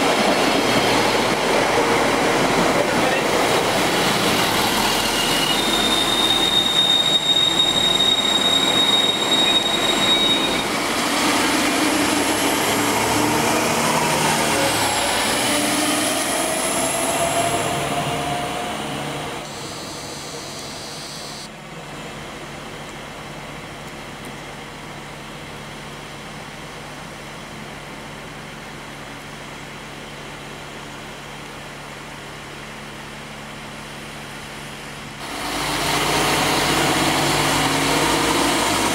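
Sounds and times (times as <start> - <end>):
train wheel squeal: 0.0 - 1.9, 3.0 - 21.5
train rumble: 0.0 - 30.8
train drive whine: 0.0 - 38.9.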